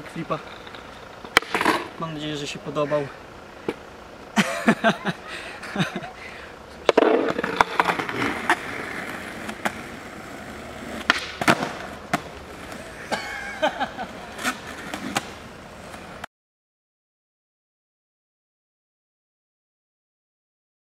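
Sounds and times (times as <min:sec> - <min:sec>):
skateboard wheels rolling on asphalt: 0:00.0 - 0:02.1, 0:06.7 - 0:16.3
skateboard clacks: 0:00.4 - 0:01.9, 0:06.8 - 0:13.0, 0:14.1 - 0:16.3.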